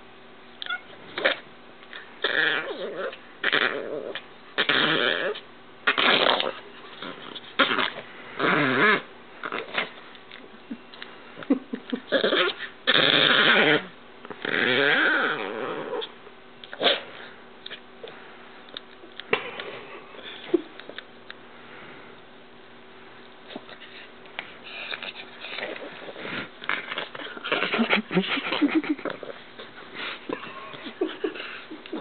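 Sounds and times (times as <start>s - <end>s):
dog play-growling: 0.6s - 10.2s, 12.0s - 18.1s, 23.4s - 32.0s.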